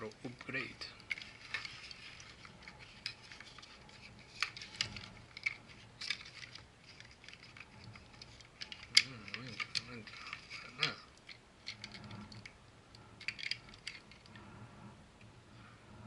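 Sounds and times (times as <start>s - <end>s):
plastic parts clicking and tapping: 0.0s - 12.6s, 13.2s - 14.4s.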